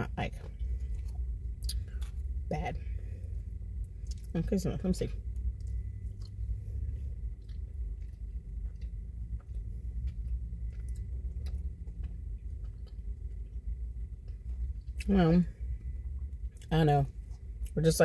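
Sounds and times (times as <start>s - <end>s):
steady low rumble: 0.0s - 18.0s
person chewing: 0.4s - 4.3s, 5.2s - 17.8s.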